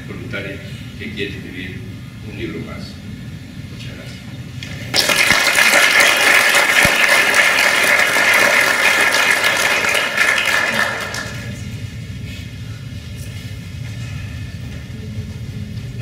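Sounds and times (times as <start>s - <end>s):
audience applauding: 4.9s - 11.6s.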